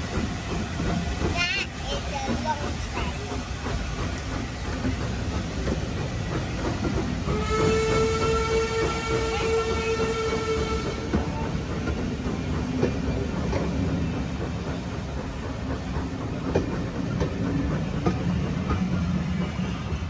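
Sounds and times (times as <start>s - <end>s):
train coaches rumbling past: 0.0s - 20.0s
wheels clacking on rail joints: 0.0s - 20.0s
steam locomotive whistle: 7.2s - 11.6s.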